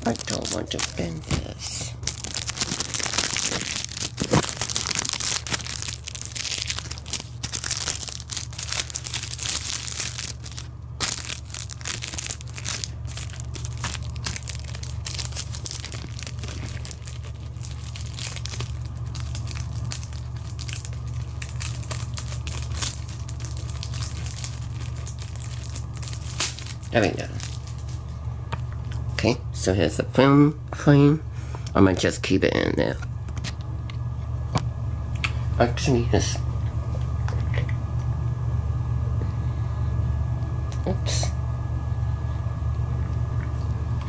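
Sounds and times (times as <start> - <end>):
plastic sleeve crinkling: 0.0 - 28.1
steady low hum: 0.0 - 44.0.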